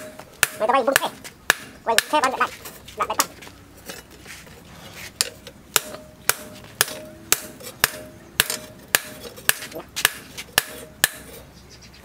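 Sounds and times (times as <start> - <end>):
hammer striking metal on anvil: 0.0 - 2.3, 5.2 - 11.4.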